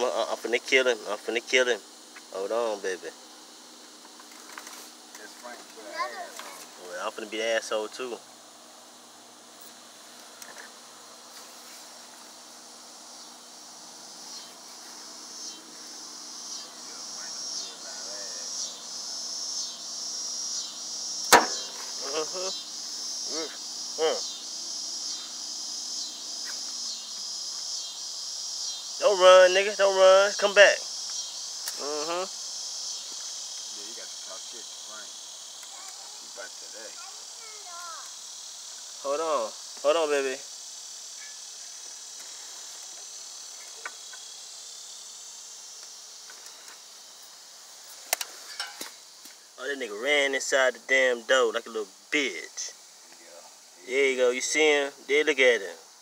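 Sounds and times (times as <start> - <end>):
high-pitched insect chorus: 0.0 - 56.0
sharp smack: 21.3 - 21.9
small click: 48.1 - 48.9.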